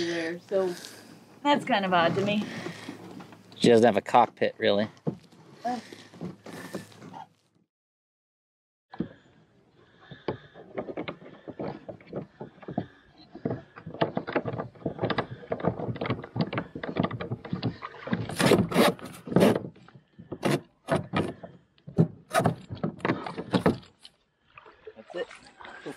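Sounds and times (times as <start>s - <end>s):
metal seat frame rattling on kayak: 13.4s - 24.1s.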